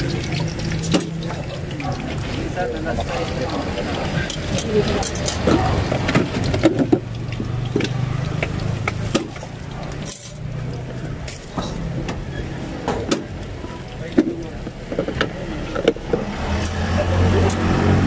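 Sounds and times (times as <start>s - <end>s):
utensils clinking on pans: 0.0s - 13.4s
vehicle engine hum: 0.0s - 18.0s.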